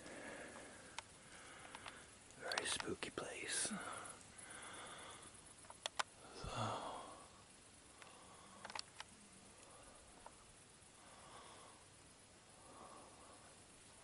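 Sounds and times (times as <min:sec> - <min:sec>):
person breathing softly: 0:00.0 - 0:02.2, 0:03.2 - 0:05.5, 0:06.2 - 0:14.0
sharp clicks: 0:00.9 - 0:03.1, 0:05.6 - 0:06.2, 0:08.0 - 0:09.1.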